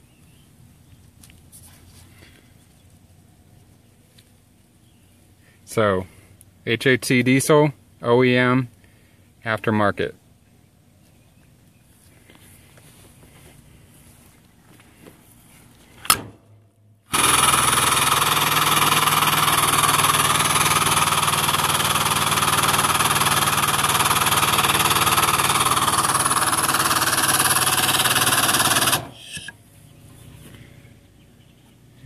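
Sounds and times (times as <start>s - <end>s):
foot pump mechanical chatter: 17.1s - 29.6s
sharp click: 28.9s - 29.6s.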